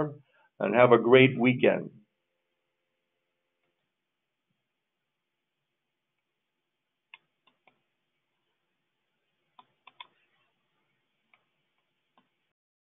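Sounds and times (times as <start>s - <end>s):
low room hiss: 0.0s - 12.6s
computer clicks: 9.6s - 10.2s.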